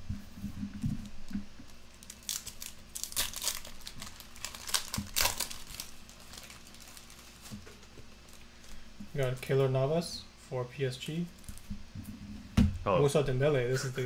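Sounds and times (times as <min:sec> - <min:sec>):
foil wrapper tearing and crinkling: 0:01.7 - 0:08.8.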